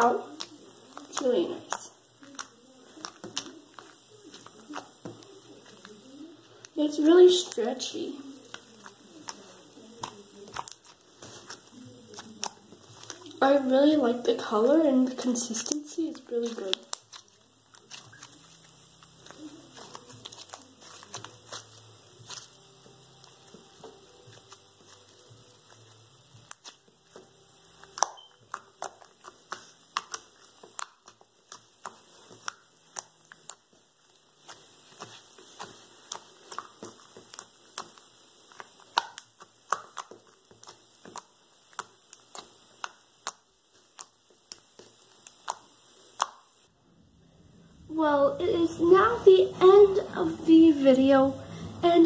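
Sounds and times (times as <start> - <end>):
slime squished by fingers: 0.0 - 5.8, 8.4 - 13.5, 15.5 - 25.1, 25.7 - 33.7, 34.4 - 46.5.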